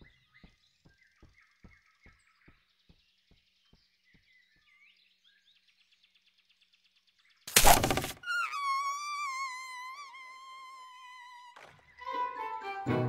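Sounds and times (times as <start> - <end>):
birds chirping softly: 0.0 - 7.5.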